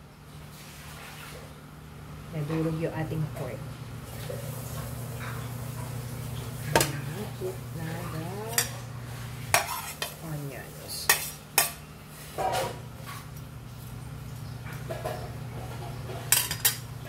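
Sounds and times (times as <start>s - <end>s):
steady low hum: 0.0s - 17.0s
spoon scraping plastic plate: 9.5s - 10.2s.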